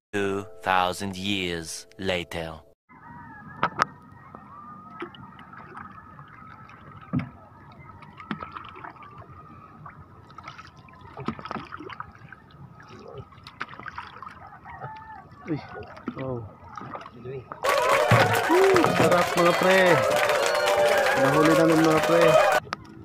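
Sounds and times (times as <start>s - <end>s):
water splashing against boat: 3.8s - 20.0s.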